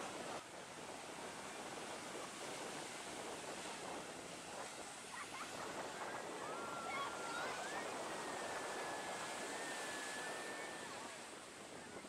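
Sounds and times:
ocean surf breaking: 5.4s - 11.8s.

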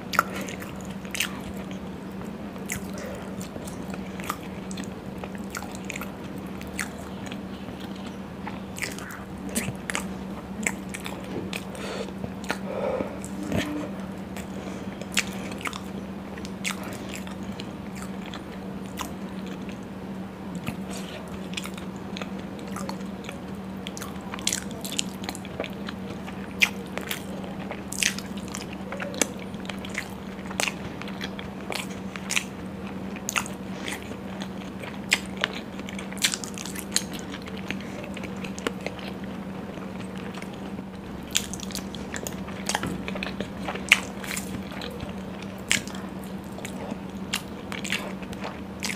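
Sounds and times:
chewing and mouth sounds: 0.0s - 48.9s
steady low hum: 0.0s - 48.9s.

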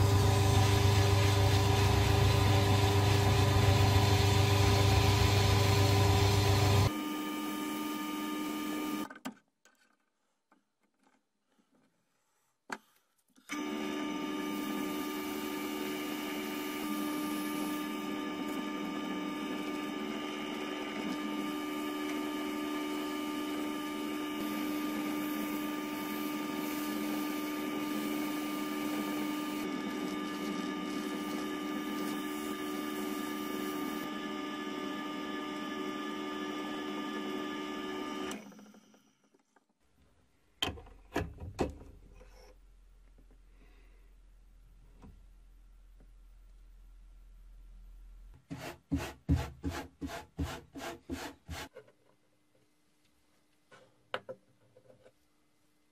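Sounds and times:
lathe humming: 0.0s - 6.9s, 13.6s - 38.4s.

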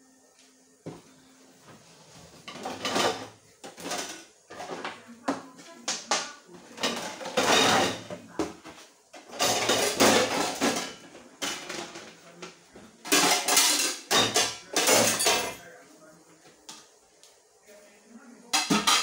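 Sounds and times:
dishes and pots clattering: 2.3s - 15.7s, 18.5s - 19.0s.

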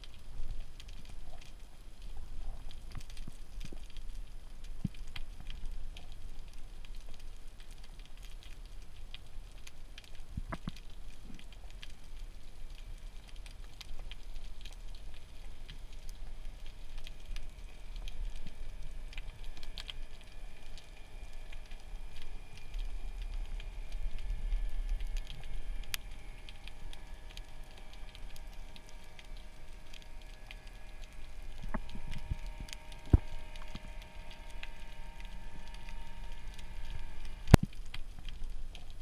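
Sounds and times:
faint steady hum: 0.0s - 39.0s
sharp clicks and crackle: 0.0s - 39.0s
underwater water rumble: 0.0s - 39.0s.

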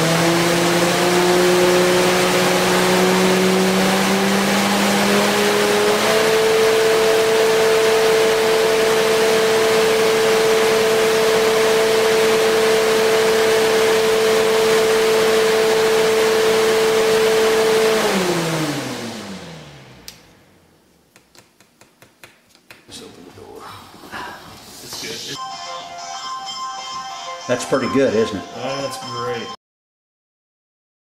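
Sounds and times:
fan winding down: 0.0s - 20.8s
fan humming: 0.0s - 25.4s.

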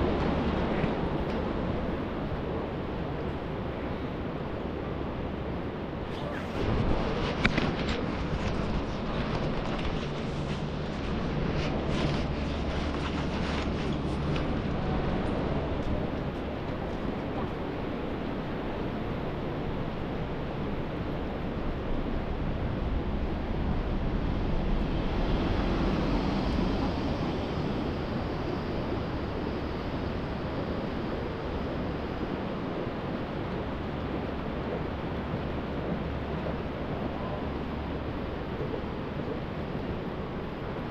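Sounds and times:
steady rushing background noise: 0.0s - 40.9s
bus passing close by: 22.6s - 30.1s.

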